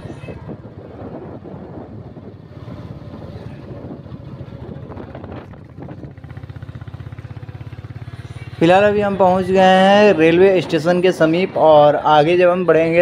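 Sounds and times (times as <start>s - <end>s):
wind rumbling on microphone: 0.0s - 7.2s
motorcycle engine running: 0.0s - 13.0s.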